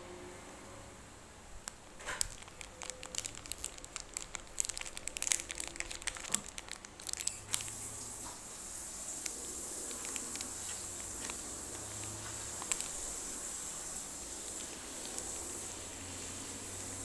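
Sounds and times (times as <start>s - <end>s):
plastic wrapper crinkling: 1.6s - 17.0s.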